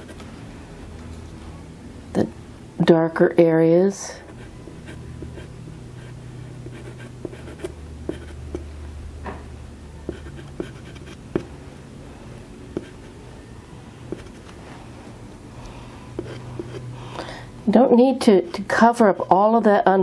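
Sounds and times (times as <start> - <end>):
low steady hum: 0.0 - 20.0
pastel scratching on paper: 10.1 - 11.5.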